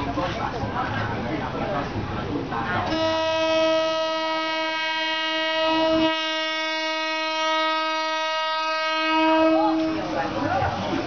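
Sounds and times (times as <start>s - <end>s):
train horn long held note: 2.9s - 10.4s.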